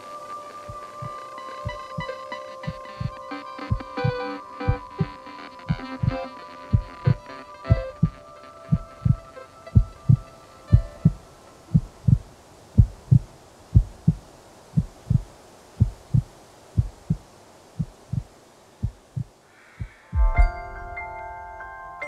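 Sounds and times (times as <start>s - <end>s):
glockenspiel-like melody: 0.0s - 11.0s, 20.2s - 22.0s
slow heartbeat thumps: 0.7s - 2.1s, 2.7s - 9.2s, 9.8s - 21.4s
bell-like tones: 20.0s - 22.0s.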